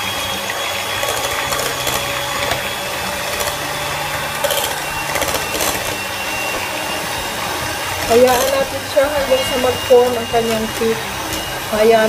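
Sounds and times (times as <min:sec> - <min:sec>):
hand mixer motor whine: 0:00.0 - 0:12.0
beaters rattling in plastic bowl: 0:00.7 - 0:06.0, 0:07.8 - 0:12.0.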